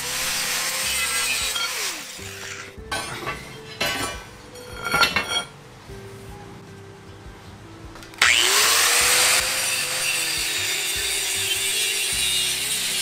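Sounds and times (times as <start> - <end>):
angle grinder spinning up: 0.0 - 2.8, 8.2 - 13.0
grinder cutting steel pipe: 0.0 - 5.5, 8.2 - 13.0.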